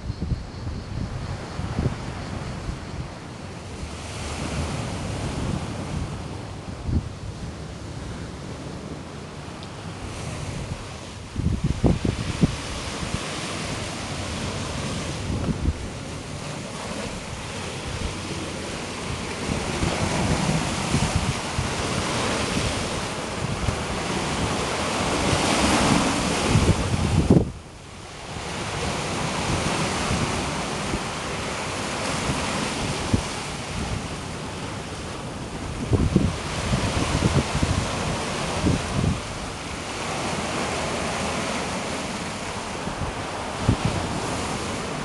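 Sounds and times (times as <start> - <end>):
wind buffeting microphone: 0.0 - 45.0
surf breaking on rocky shore: 1.5 - 45.0.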